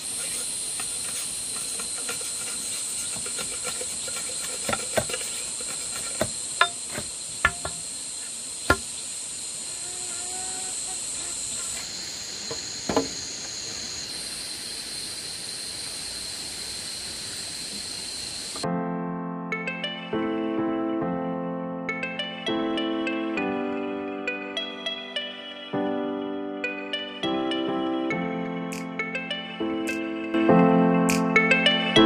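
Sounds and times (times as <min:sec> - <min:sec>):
insects chorus: 0:00.0 - 0:18.6
machete striking bamboo: 0:03.1 - 0:07.8, 0:08.7 - 0:09.0, 0:12.9 - 0:13.2.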